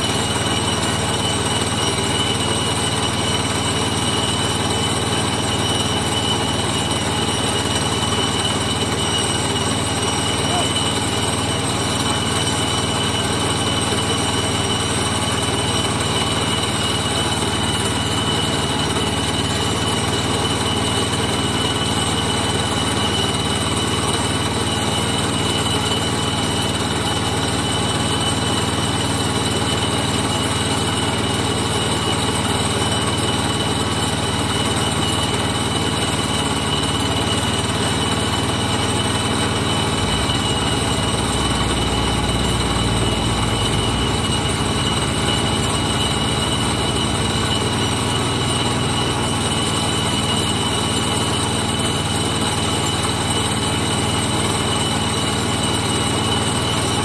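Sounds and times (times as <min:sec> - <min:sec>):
engine running steadily: 0:00.0 - 0:57.0
high whine: 0:37.7 - 0:50.4.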